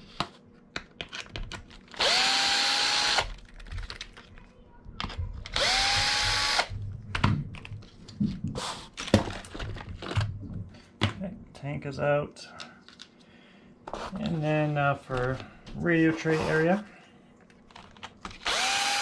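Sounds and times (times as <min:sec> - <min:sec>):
cordless drill motor whine: 0:02.0 - 0:03.3, 0:05.6 - 0:06.7, 0:18.4 - 0:19.0.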